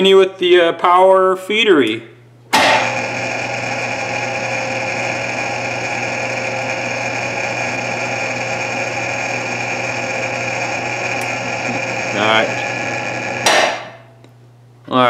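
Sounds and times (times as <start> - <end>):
lathe machine hum: 2.6 - 14.1.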